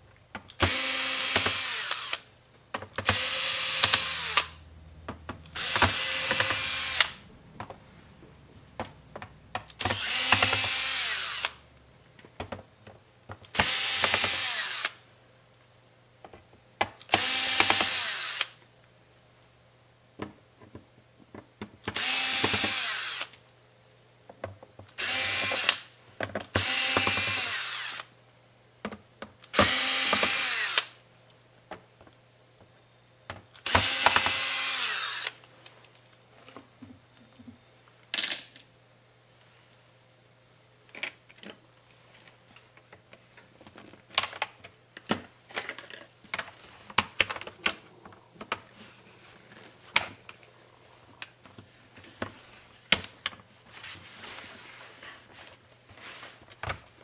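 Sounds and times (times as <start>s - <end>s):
electric screwdriver whirring: 0.6s - 2.2s, 3.0s - 4.6s, 5.5s - 7.2s, 9.8s - 11.6s, 13.5s - 15.0s, 17.1s - 18.6s, 21.9s - 23.4s, 25.0s - 25.8s, 26.5s - 28.1s, 29.5s - 31.0s, 33.6s - 35.4s.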